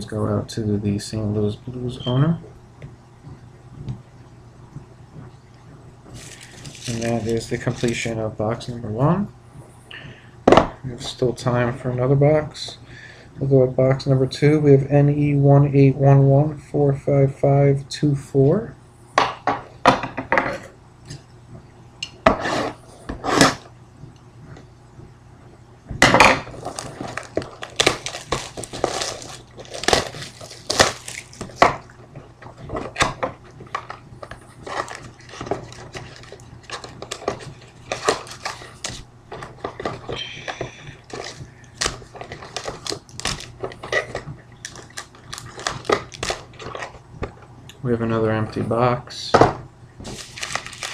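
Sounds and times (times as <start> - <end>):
plastic wrap crinkling: 6.1 - 8.2, 26.5 - 31.9, 33.7 - 47.0, 50.0 - 50.9
scissors cutting plastic wrap: 6.2 - 8.1, 26.6 - 31.6, 34.4 - 39.0, 41.1 - 46.9, 50.0 - 50.9.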